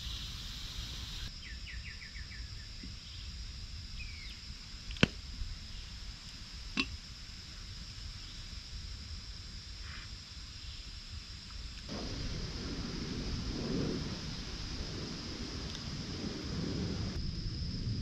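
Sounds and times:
high-pitched insect drone: 0.0s - 4.8s
low wind rumble: 0.0s - 18.0s.

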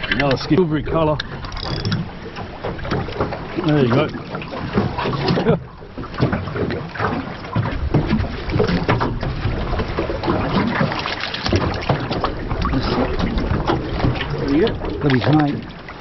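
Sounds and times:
wind buffeting microphone: 0.0s - 15.9s
waves slapping against boat hull: 0.0s - 16.0s.

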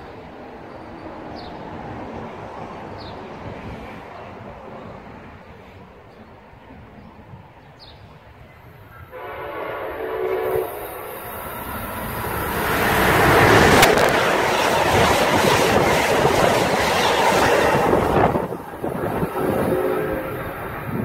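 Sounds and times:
train wheels rushing on rail: 8.1s - 21.0s
train horn blast: 9.1s - 11.3s, 19.2s - 20.8s.

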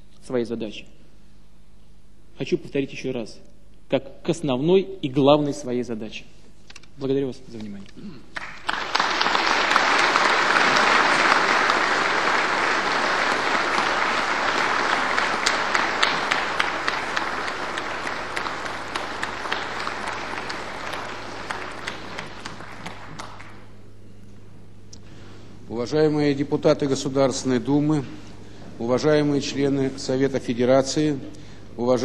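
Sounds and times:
audience applauding: 8.3s - 23.8s.

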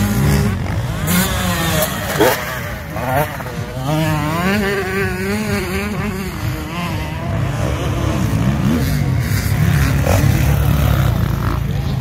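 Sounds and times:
motocross bike engines revving: 0.0s - 12.0s.

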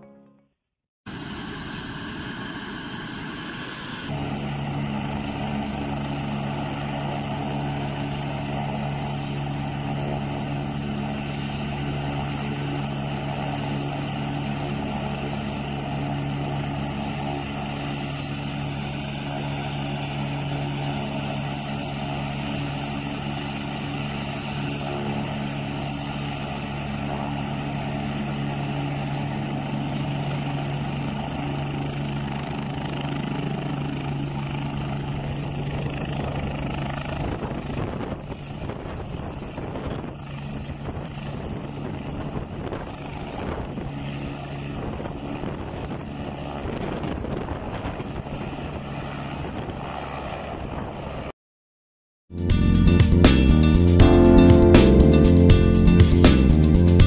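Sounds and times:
high turbine whine: 1.1s - 44.0s
helicopter engine hum: 1.1s - 51.3s, 52.3s - 57.0s.

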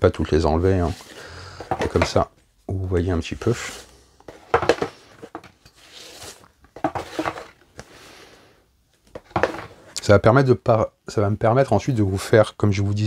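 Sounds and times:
cardboard rustling and sliding: 3.4s - 8.1s.

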